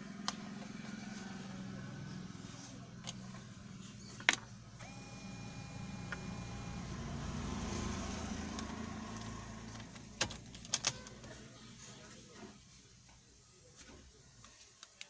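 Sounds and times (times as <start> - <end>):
low hum from car: 0.3 - 11.4.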